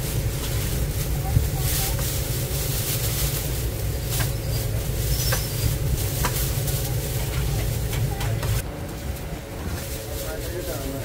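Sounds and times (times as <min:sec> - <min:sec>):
plastic bag crinkling: 0:00.0 - 0:08.2
kitchen machinery hum: 0:00.0 - 0:11.0.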